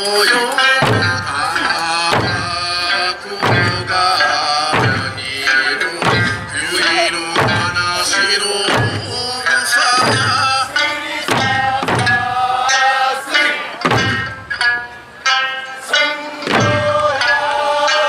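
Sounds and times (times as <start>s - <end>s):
person singing folk melody: 0.0s - 13.8s
barrel drums struck in unison: 0.7s - 12.5s, 13.8s - 14.6s, 16.4s - 17.3s.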